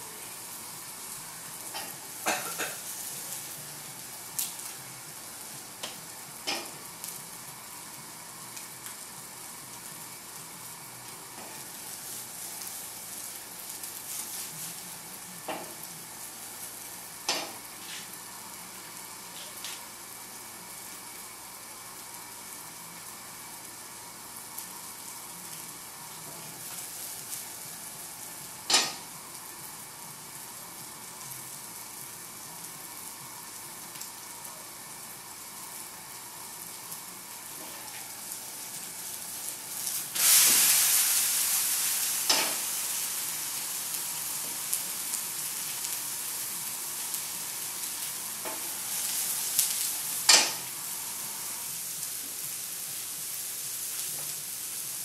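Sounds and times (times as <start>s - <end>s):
eggs sizzling in a frying pan: 0.0s - 55.0s.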